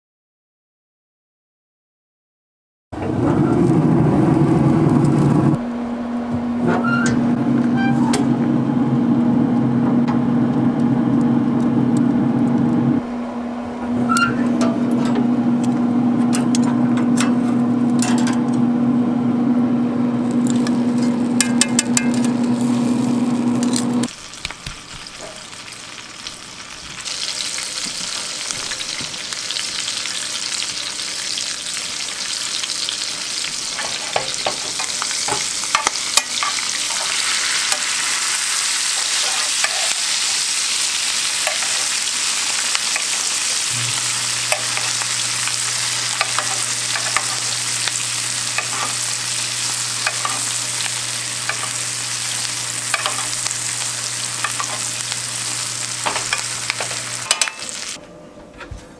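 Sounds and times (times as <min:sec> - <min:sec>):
butter sizzling in a skillet: 0:20.3 - 0:58.0.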